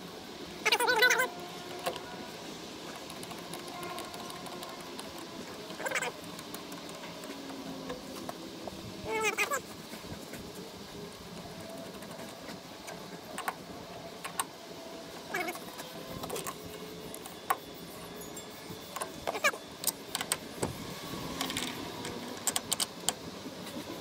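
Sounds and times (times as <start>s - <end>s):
short wavering calls: 0.6s - 7.8s, 9.0s - 9.7s
ratchet wrench clicking: 21.4s - 23.2s.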